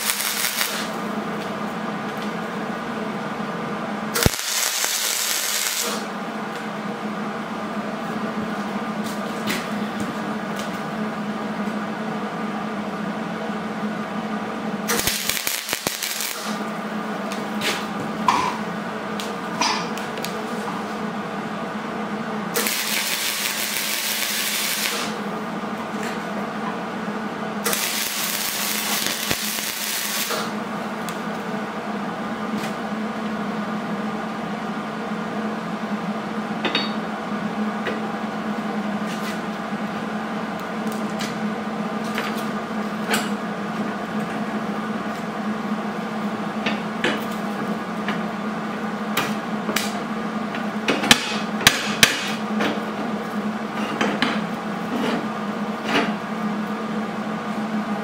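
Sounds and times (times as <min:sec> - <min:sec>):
welder arc crackling and hissing: 0:00.0 - 0:01.5, 0:04.1 - 0:06.7, 0:14.8 - 0:18.0, 0:22.4 - 0:25.5, 0:27.6 - 0:31.4
steady hum: 0:00.0 - 0:58.0.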